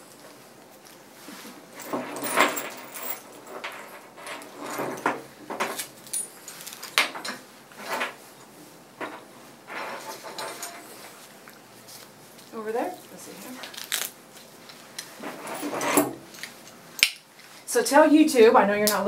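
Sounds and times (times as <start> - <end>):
metal buckles clinking: 1.8 - 5.1.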